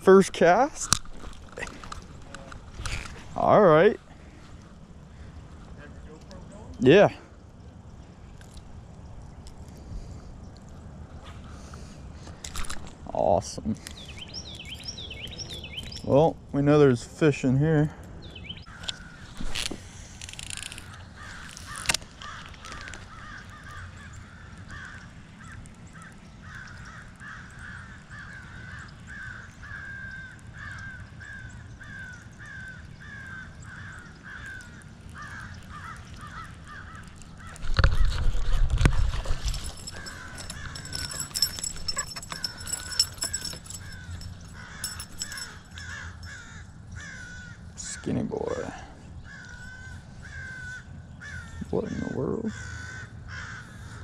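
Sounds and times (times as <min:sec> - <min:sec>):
bird calling: 0:13.8 - 0:16.3, 0:39.4 - 0:48.1, 0:49.2 - 0:54.0.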